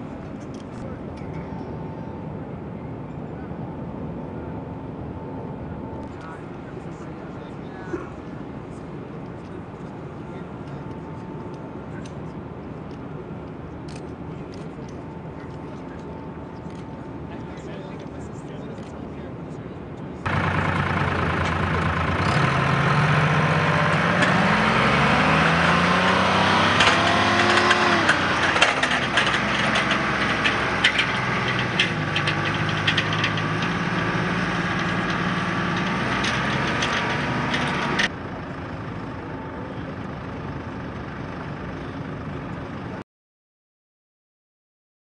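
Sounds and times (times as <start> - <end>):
tow tractor engine running: 20.0 - 43.0
clanks and rattles: 20.3 - 38.1.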